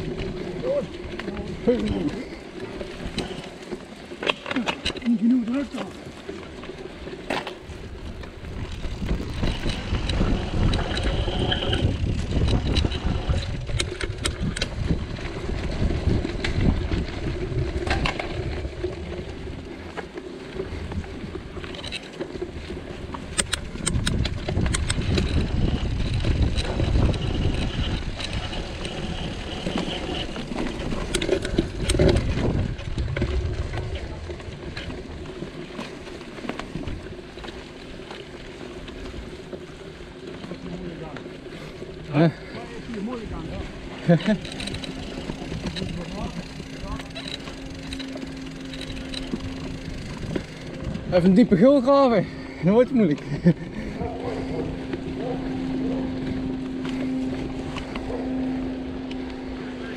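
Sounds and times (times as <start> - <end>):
bike tyres rumbling on dirt: 0.0 - 58.4
bike clicks and rattles: 0.0 - 59.9
wind on microphone: 7.6 - 19.8, 22.5 - 35.3, 43.2 - 51.5, 53.3 - 59.9.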